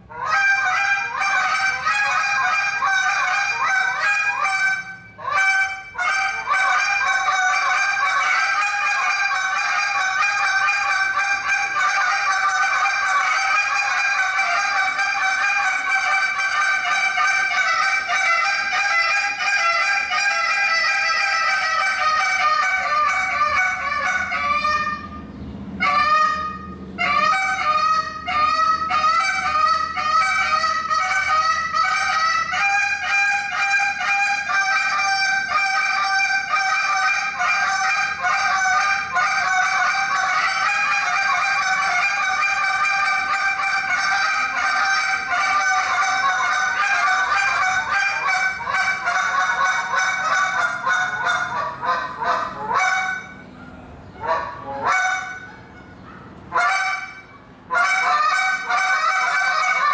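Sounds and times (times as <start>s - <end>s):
goose call honks and clucks: 0.0s - 59.9s.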